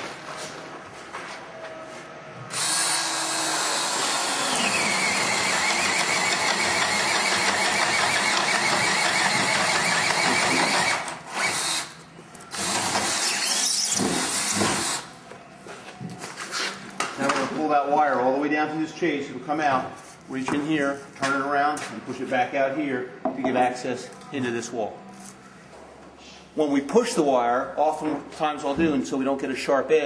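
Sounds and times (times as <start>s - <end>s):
power drill boring into wood: 2.5s - 11.9s, 12.5s - 15.0s.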